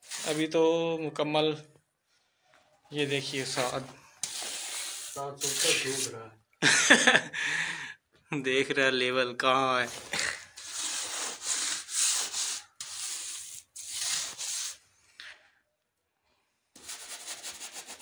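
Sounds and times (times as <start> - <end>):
trowel scraping wet cement: 0.0 - 0.6, 3.1 - 6.2, 9.9 - 14.8.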